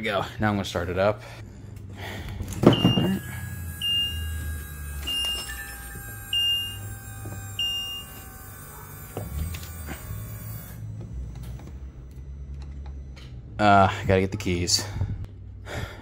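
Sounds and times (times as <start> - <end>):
low hum: 0.8 - 16.0
dashboard warning chime beeping: 2.7 - 8.3.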